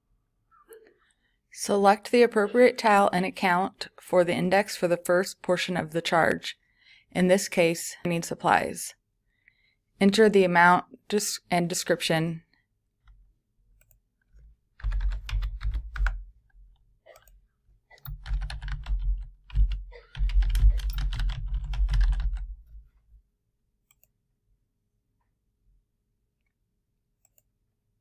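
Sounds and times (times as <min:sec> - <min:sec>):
typing on computer keyboard: 0:14.8 - 0:16.2, 0:18.0 - 0:22.5.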